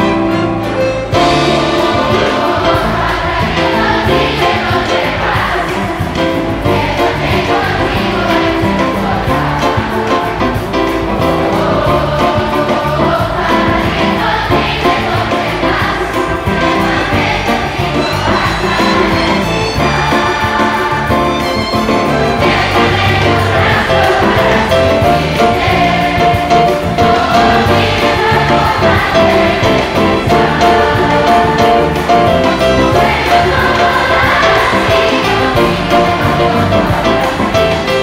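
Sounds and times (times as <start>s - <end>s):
children's choir singing: 0.0s - 38.0s
orchestra playing: 0.0s - 38.0s.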